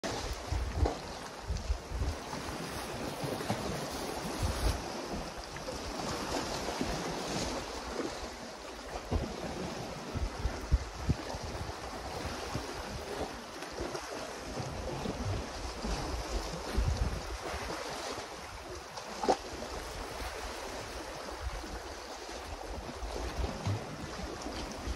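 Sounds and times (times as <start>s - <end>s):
wind buffeting microphone: 0.1s - 3.5s, 9.0s - 13.3s, 14.5s - 17.8s.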